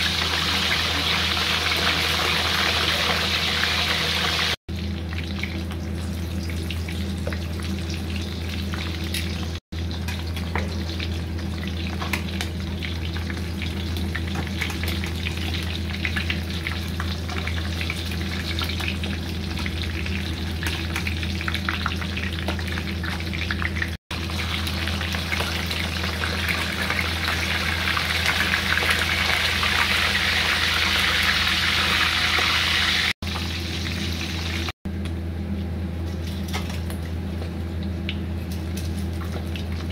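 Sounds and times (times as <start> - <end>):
fish sizzling in a pan: 0.0 - 4.6, 5.2 - 34.7.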